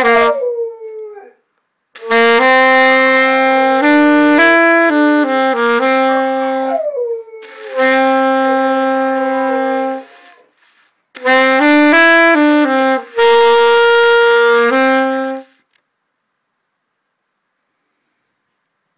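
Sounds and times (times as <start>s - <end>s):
saxophone playing: 0.0s - 0.6s, 2.0s - 10.5s, 11.1s - 15.6s
dog howling: 8.5s - 10.5s.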